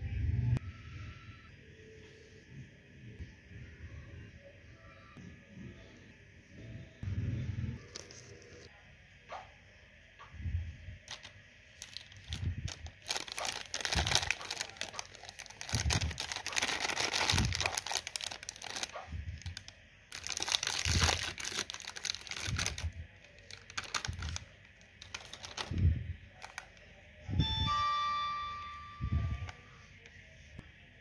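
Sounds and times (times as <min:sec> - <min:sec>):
plastic packets crinkling: 0:07.8 - 0:08.7, 0:11.1 - 0:26.8
packet tearing open: 0:07.9 - 0:08.7, 0:11.1 - 0:26.7.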